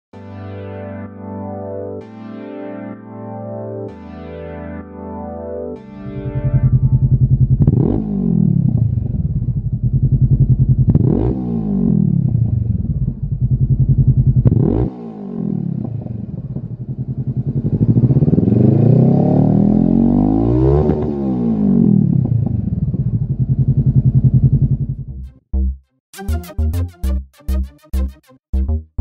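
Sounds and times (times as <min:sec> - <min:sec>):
motorcycle engine revving: 0:06.0 - 0:25.1.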